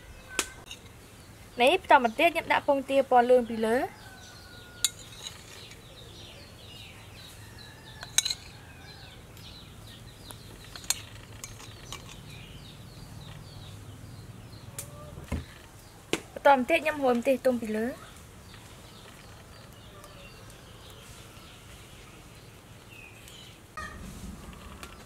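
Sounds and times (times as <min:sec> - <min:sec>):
steady low hum: 0:23.8 - 0:25.0.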